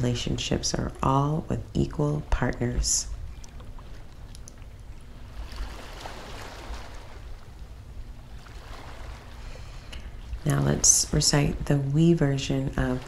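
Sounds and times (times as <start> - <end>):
ocean waves washing on shore: 5.1 - 13.0.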